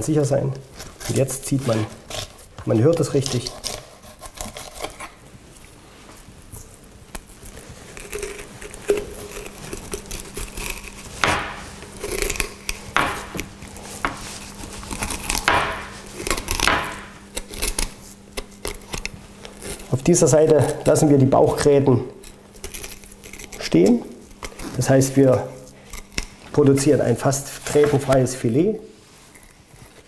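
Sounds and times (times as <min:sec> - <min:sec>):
knife scraping over fish bones: 0:00.8 - 0:05.2, 0:07.4 - 0:21.1, 0:22.1 - 0:26.6.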